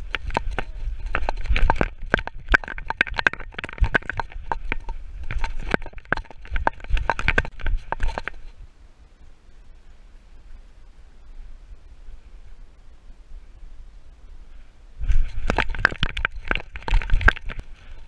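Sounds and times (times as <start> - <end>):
harness fittings clicking and rattling: 0.0 - 8.4.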